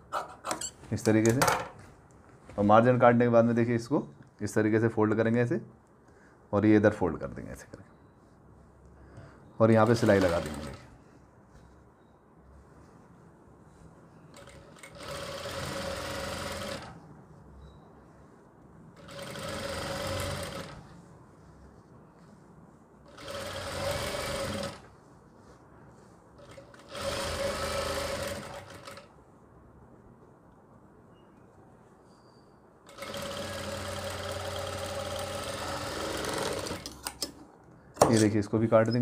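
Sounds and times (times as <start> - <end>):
sewing machine motor whine: 14.4 - 16.9, 19.0 - 20.8, 26.5 - 29.0, 32.9 - 36.8.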